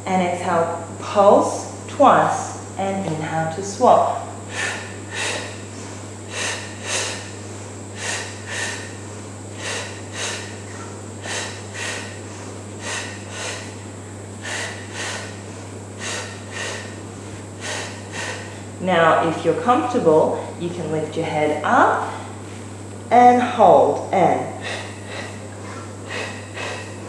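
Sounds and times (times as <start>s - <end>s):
low steady hum: 0.0s - 27.0s
woman exhaling forcefully: 4.5s - 7.4s, 8.0s - 13.8s, 14.4s - 18.8s, 24.5s - 27.0s.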